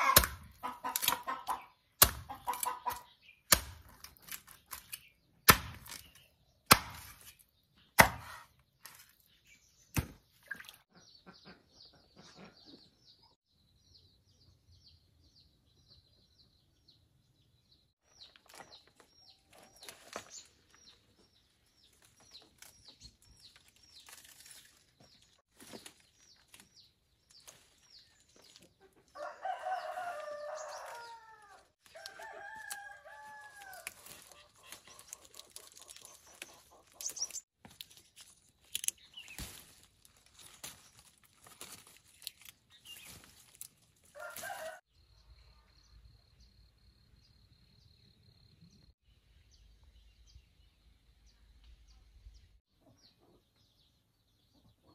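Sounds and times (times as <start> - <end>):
small birds chirping: 0.0 - 54.9
rooster crowing: 29.2 - 33.9, 44.2 - 44.9.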